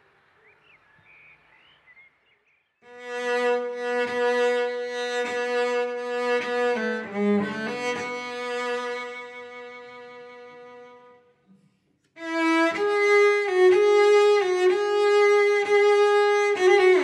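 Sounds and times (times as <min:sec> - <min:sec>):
cello bowing: 0:02.9 - 0:11.3, 0:12.2 - 0:17.0.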